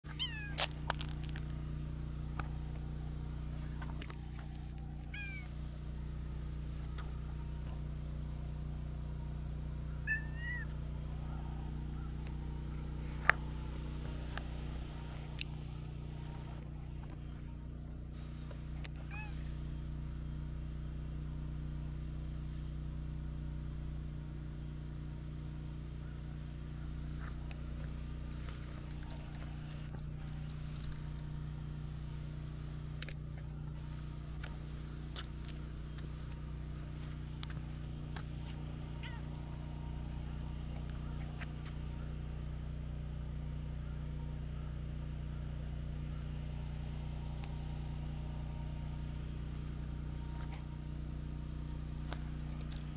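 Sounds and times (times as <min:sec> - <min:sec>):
cat meowing softly: 0:00.1 - 0:00.6, 0:05.1 - 0:05.5, 0:10.0 - 0:10.8, 0:19.0 - 0:19.5, 0:39.0 - 0:39.3
low background hum: 0:00.1 - 0:52.9
faint clicks: 0:28.2 - 0:31.4.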